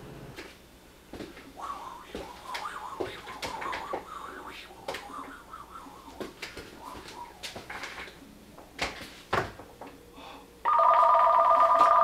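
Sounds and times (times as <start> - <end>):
telephone ringing: 10.6 - 12.0.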